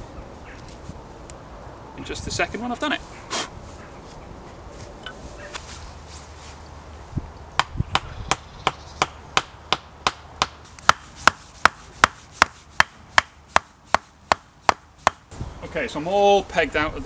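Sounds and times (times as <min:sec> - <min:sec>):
wooden peg hammering knocks: 0:07.6 - 0:15.2.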